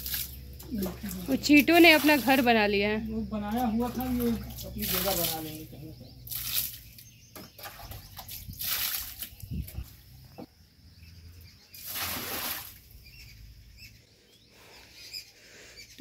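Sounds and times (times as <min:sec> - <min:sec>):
water splashing on tiled floor: 0:00.0 - 0:02.7, 0:03.5 - 0:09.9, 0:11.8 - 0:12.9.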